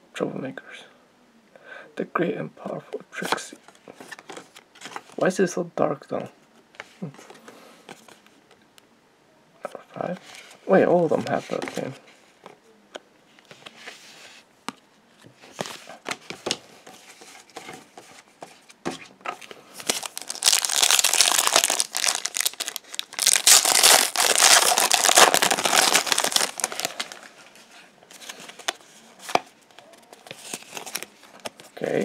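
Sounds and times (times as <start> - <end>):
wrapper crinkling: 19.8 - 27.6.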